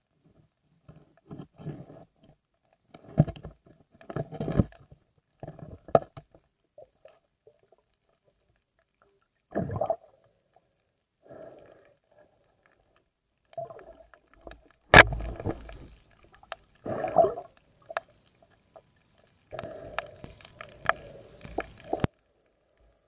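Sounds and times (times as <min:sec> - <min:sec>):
underwater clicks and knocks: 0:02.9 - 0:06.5, 0:14.4 - 0:16.6
underwater bubbling: 0:09.1 - 0:23.0
sharp snap: 0:15.0 - 0:15.6.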